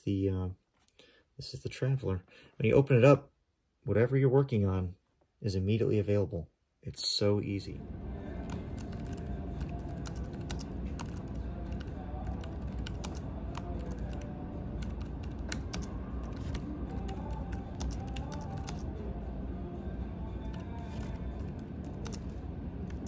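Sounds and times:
low background rumble: 0:07.7 - 0:23.0.

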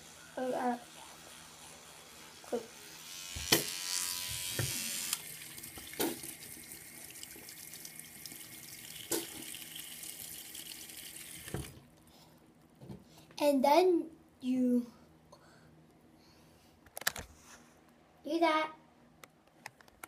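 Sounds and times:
tap water running into sink: 0:04.6 - 0:11.8.

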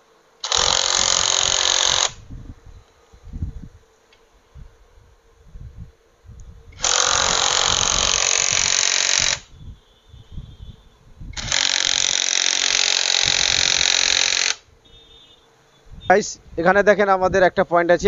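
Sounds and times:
workshop tool hissing: 0:00.0 - 0:02.2, 0:06.7 - 0:09.5, 0:11.3 - 0:15.4.

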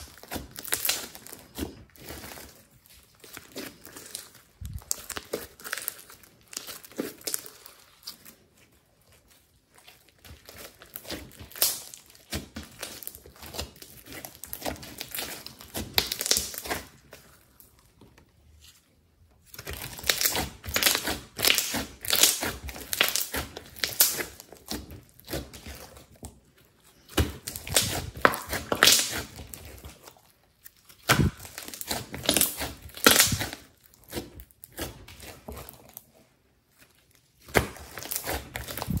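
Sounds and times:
slime kneaded by hand: 0:00.0 - 0:39.0.

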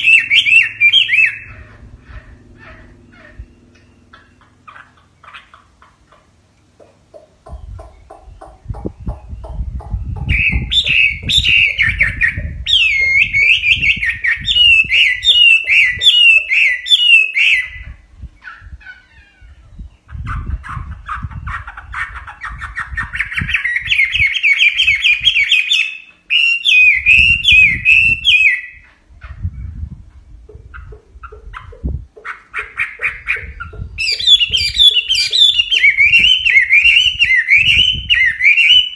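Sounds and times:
bird singing whistled phrases: 0:00.0 - 0:01.5, 0:10.3 - 0:17.8, 0:23.2 - 0:28.8, 0:34.0 - 0:38.9
bird notes climbing in pitch: 0:00.0 - 0:38.9.

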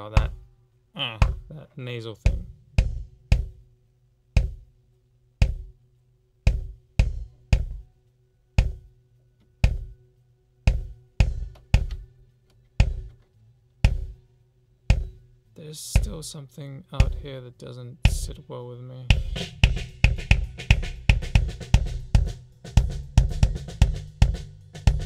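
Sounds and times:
kick drum beats: 0:00.0 - 0:00.5, 0:01.1 - 0:03.7, 0:04.3 - 0:04.7, 0:05.4 - 0:05.8, 0:06.4 - 0:07.9, 0:08.6 - 0:09.0, 0:09.6 - 0:10.0, 0:10.7 - 0:12.1, 0:12.8 - 0:13.2, 0:13.8 - 0:14.2, 0:14.9 - 0:15.3, 0:15.9 - 0:16.3, 0:17.0 - 0:17.3, 0:18.0 - 0:18.4, 0:19.1 - 0:25.0.

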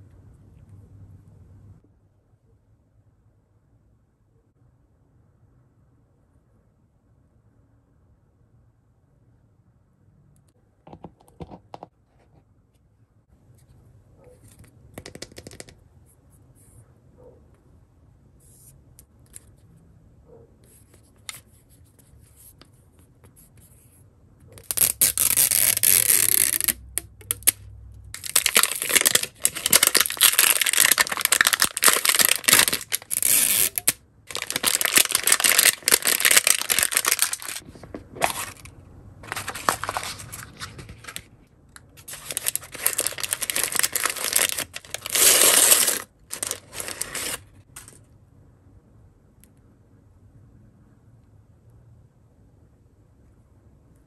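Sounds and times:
plastic wrap crackling: 0:24.6 - 0:27.6, 0:28.2 - 0:41.3, 0:42.0 - 0:47.4.

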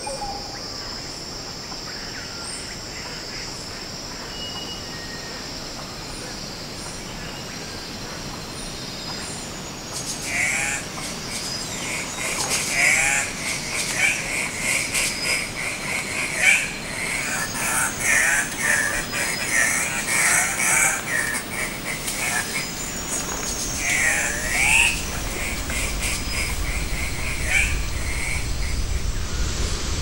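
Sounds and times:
harsh croaking bird squawks: 0:10.2 - 0:10.9, 0:12.2 - 0:28.8.

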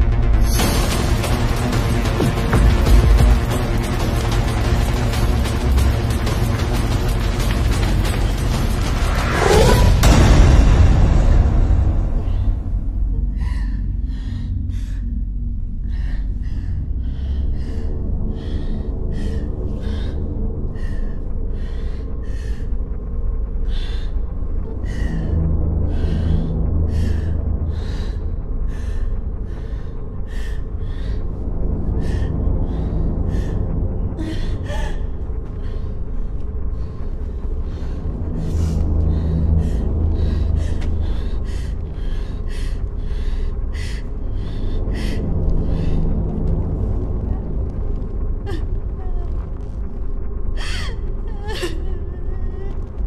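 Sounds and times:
low droning horror score: 0:00.0 - 0:53.0
steady low rumble: 0:00.0 - 0:53.0
woman sobbing and gasping: 0:50.5 - 0:53.0.

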